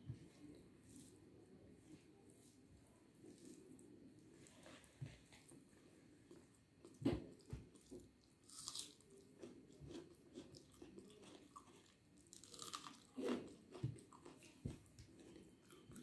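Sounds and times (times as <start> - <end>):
chewing and mouth sounds: 8.5 - 16.0.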